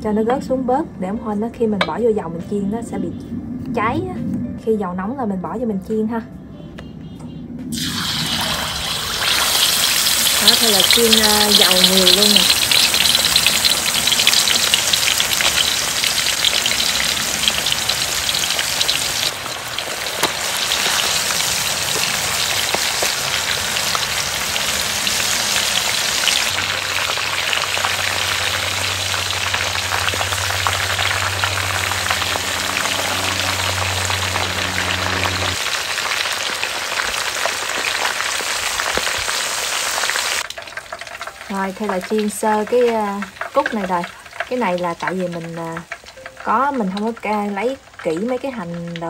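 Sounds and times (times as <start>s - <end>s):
oil sizzling and crackling: 7.7s - 49.0s
low hum: 25.0s - 35.7s.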